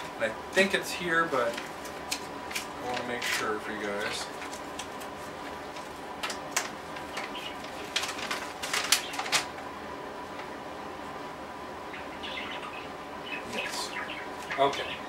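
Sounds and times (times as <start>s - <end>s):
faint steady hum: 0.0s - 15.0s
paper crackling: 1.3s - 9.7s.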